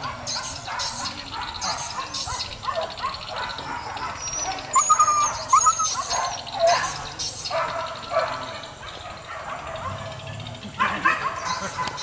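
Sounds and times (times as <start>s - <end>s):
dogs yelping and whining: 0.4s - 8.2s.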